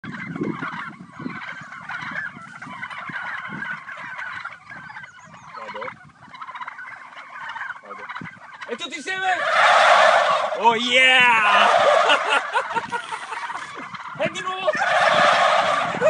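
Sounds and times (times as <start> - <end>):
turkeys gobbling: 0.0 - 16.0.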